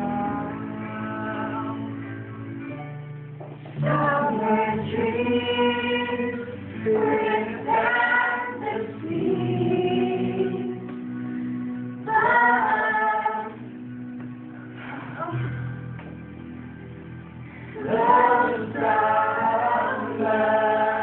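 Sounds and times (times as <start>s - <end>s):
group singing held notes: 3.8s - 11.2s, 12.0s - 13.7s, 17.7s - 21.0s.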